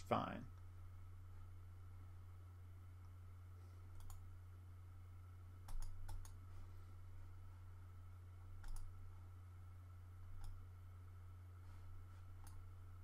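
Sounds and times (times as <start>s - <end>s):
low electrical hum: 0.0s - 13.0s
computer mouse clicks: 3.9s - 4.3s, 5.6s - 6.4s, 8.4s - 9.0s, 10.4s - 10.6s, 12.3s - 12.7s.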